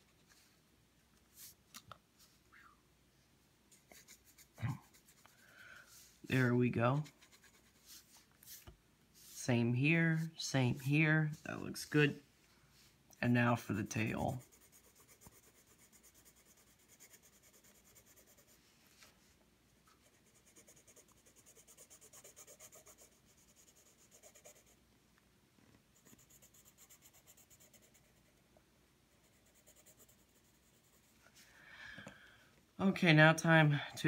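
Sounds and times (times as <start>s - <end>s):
pencil shading on paper: 7.0s - 9.4s, 14.2s - 18.6s, 20.0s - 24.8s, 26.0s - 28.4s, 29.2s - 31.1s.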